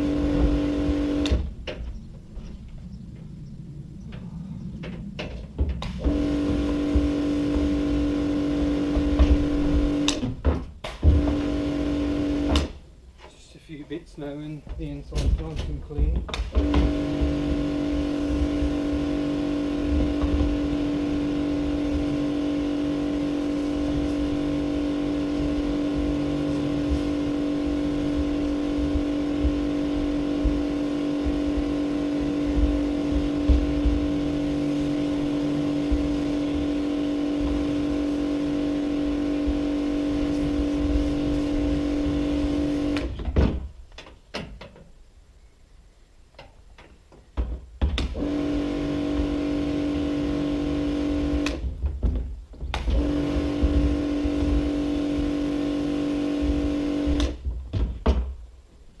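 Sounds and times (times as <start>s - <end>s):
pressure washer motor humming: 0.0s - 1.6s, 5.8s - 12.8s, 16.4s - 43.2s, 48.2s - 51.8s, 52.7s - 57.5s
water spraying inside plastic tank: 16.6s - 43.0s, 48.2s - 51.6s, 52.7s - 57.3s.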